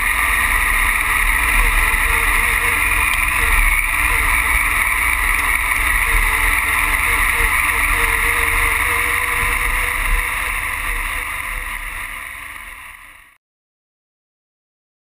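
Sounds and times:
motorcycle engine running: 0.0s - 13.4s.

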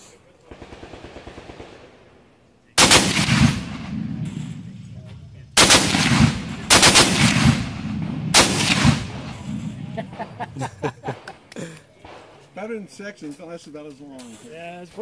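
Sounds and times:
heavy machine gun bursts: 2.8s - 4.5s, 5.6s - 10.4s.

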